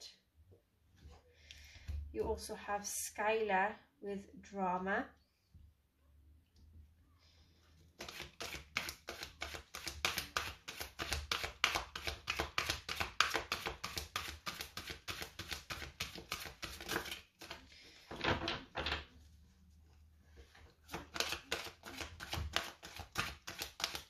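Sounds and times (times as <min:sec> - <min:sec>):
cards shuffled with flicks: 0:08.0 - 0:17.6, 0:20.8 - 0:24.0.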